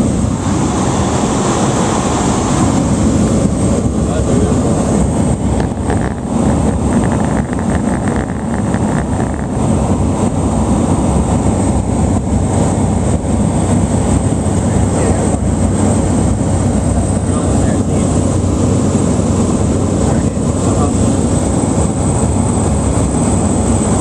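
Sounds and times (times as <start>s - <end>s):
propeller plane engine drone: 0.0s - 24.0s.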